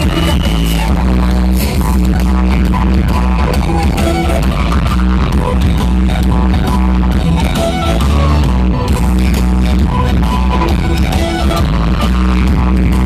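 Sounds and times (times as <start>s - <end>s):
loud dance music with heavy bass: 0.0s - 13.0s.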